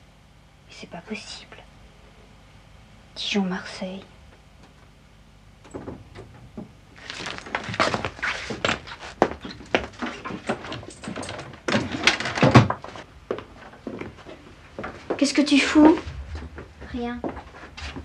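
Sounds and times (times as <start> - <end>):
papers and objects handled on desk: 5.7 - 15.1.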